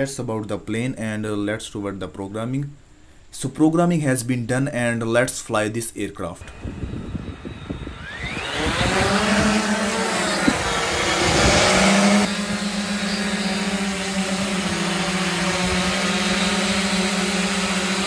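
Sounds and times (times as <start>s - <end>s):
drone motors and propellers buzzing: 6.4s - 18.0s.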